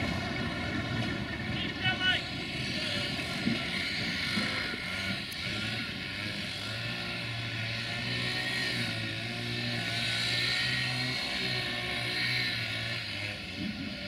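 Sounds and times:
coaches rumbling over points: 0.0 - 3.7
diesel locomotive engine under load: 0.0 - 14.0.

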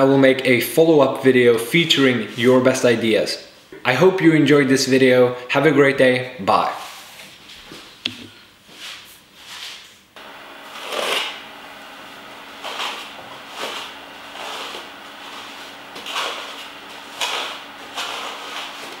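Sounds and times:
faint steady hum: 10.1 - 19.0.

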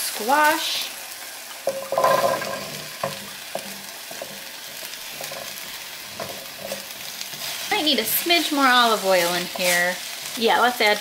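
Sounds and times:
frying sizzle: 0.0 - 11.0
vegetables dropped into hot pan: 1.6 - 4.5
spatula knocking against pan: 1.7 - 6.9.

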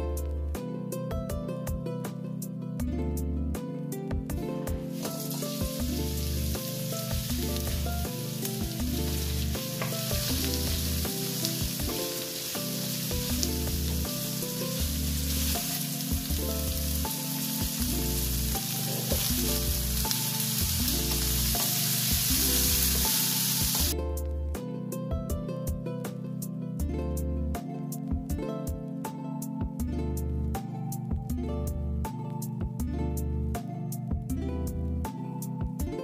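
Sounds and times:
background music: 0.0 - 36.0
onions sizzling in oil: 4.9 - 23.9.

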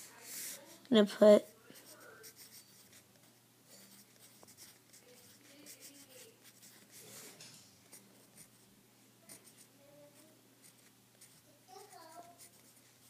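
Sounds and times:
pencil scratching on paper: 0.0 - 3.1, 3.7 - 8.6, 9.2 - 13.0.

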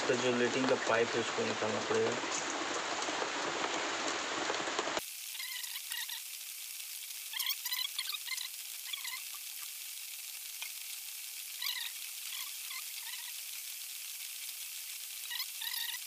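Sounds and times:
steady hiss: 0.0 - 16.0
short chirping animal calls: 5.4 - 6.2, 7.3 - 9.7, 11.6 - 13.4, 15.2 - 16.0.

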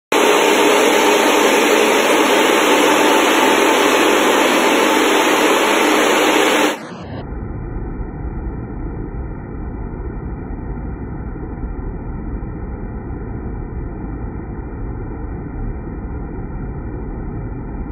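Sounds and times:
water spraying with loud hiss: 0.2 - 6.8
muffled low rumble: 2.0 - 17.9.

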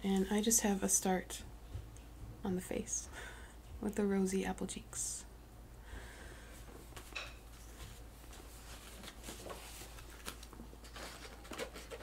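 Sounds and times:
cloth and paper rustling: 6.9 - 12.0.

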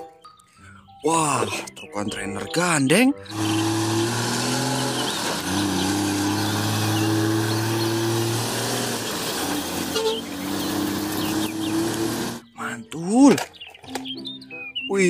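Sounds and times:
diesel truck engine droning: 3.3 - 12.5
road noise rushing: 3.3 - 12.5.

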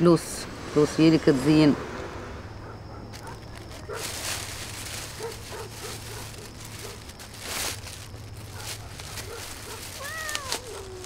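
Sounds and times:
faint rustles: 2.6 - 11.0
cat meowing: 9.9 - 11.0.

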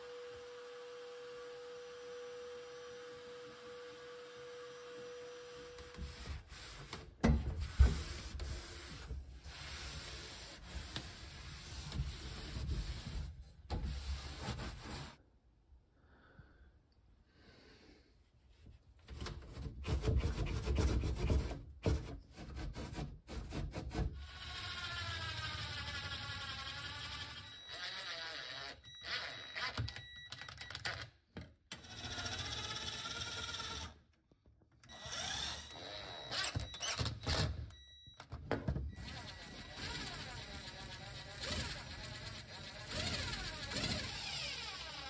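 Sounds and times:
electric drill driving screws: 24.3 - 29.9, 31.8 - 34.0, 34.9 - 37.6, 39.0 - 45.0.

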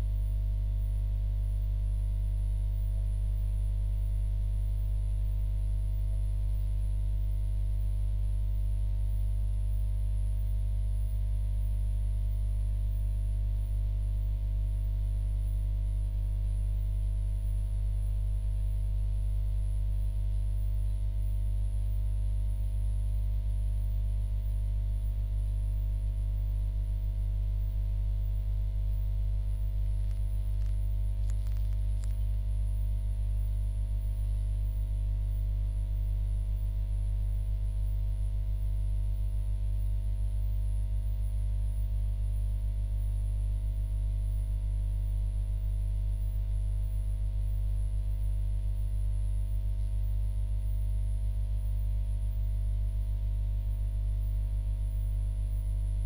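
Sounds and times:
low electrical hum: 0.0 - 56.0.

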